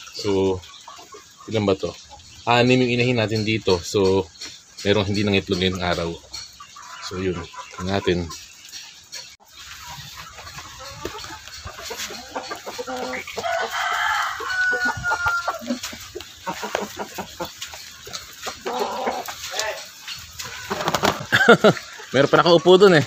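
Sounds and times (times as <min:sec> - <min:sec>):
hens clucking: 0:00.0 - 0:23.0
rooster crowing: 0:12.9 - 0:15.8.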